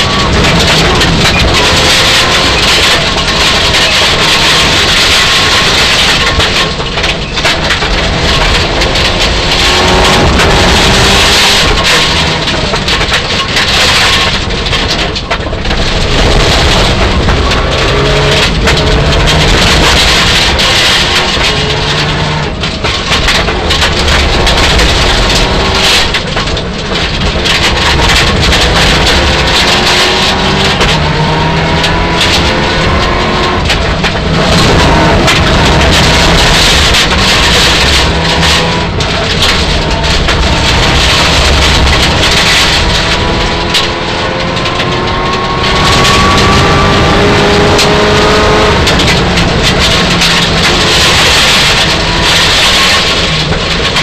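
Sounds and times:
gravel clattering against underbody: 0:00.0 - 0:54.0
rally car engine running hard: 0:00.0 - 0:54.0.

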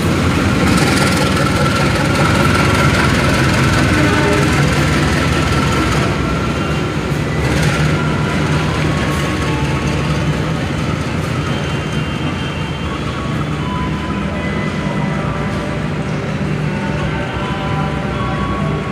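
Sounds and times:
train wheels on rails: 0:00.0 - 0:18.9.

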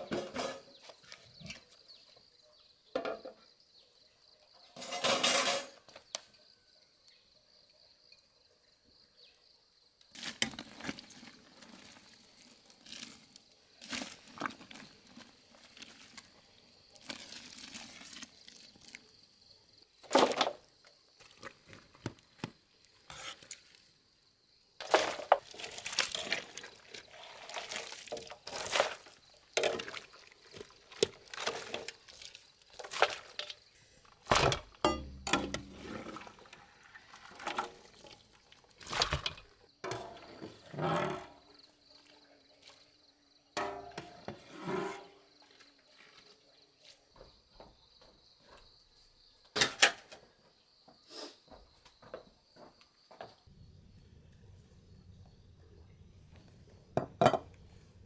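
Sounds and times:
dishes and utensils clinking: 0:04.8 - 0:05.9, 0:34.4 - 0:35.8, 0:43.6 - 0:45.0.

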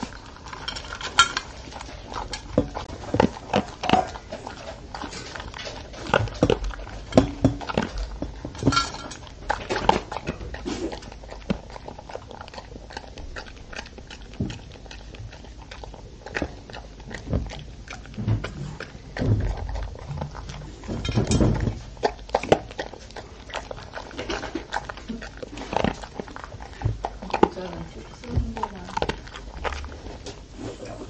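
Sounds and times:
kibble clattering in metal bowl: 0:00.0 - 0:10.9, 0:18.2 - 0:22.7
dog crunching dry kibble: 0:00.0 - 0:31.0.

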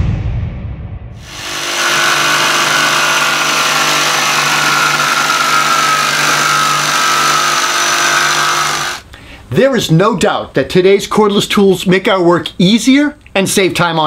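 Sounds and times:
jigsaw cutting board: 0:01.2 - 0:09.0.

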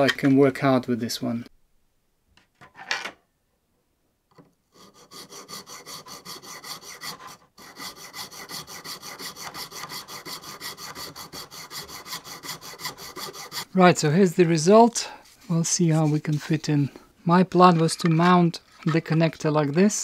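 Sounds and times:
hacksaw cutting plastic: 0:04.7 - 0:13.7.

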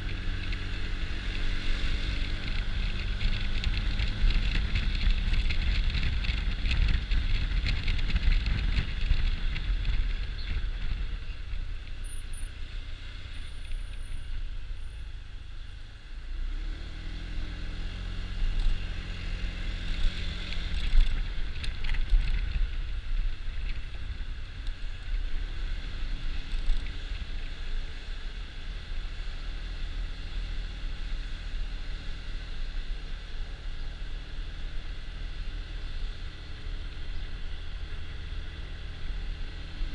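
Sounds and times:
scooter engine hum: 0:00.0 - 0:16.3
wind and road noise: 0:00.0 - 0:39.9.

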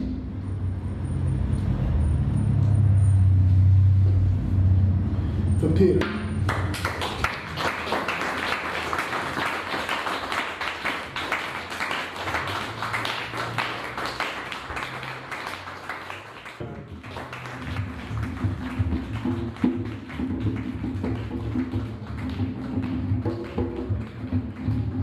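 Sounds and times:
audience applauding: 0:06.4 - 0:25.0.

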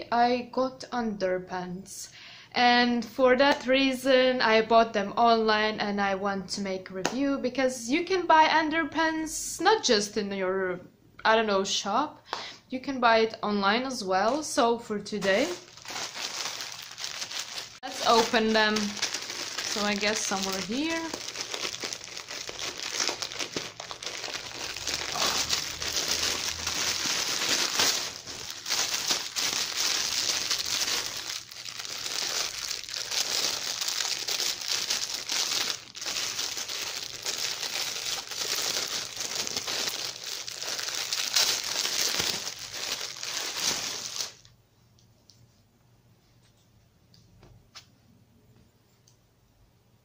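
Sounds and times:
plastic packaging crinkling: 0:15.1 - 0:44.5.

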